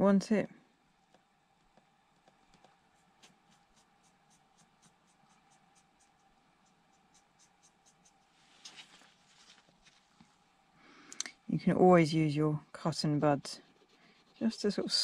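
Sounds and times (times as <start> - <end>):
paintbrush strokes on paper: 1.0 - 10.5, 13.0 - 15.0
paper sheet rustling: 8.2 - 10.2.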